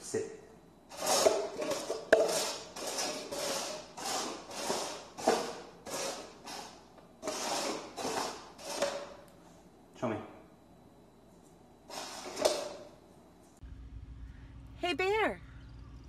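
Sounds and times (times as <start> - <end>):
plastic cups scraping on hardwood floor: 0.9 - 9.2, 11.9 - 12.8.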